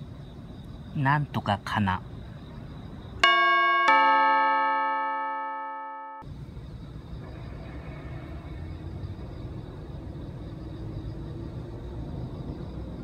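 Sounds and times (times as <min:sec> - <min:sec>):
low outdoor rumble: 0:06.2 - 0:13.0.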